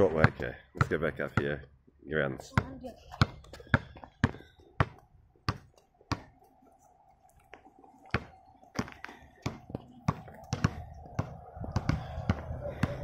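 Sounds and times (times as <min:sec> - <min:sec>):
basketball bouncing on hard surface: 0:02.5 - 0:06.3, 0:08.1 - 0:13.0.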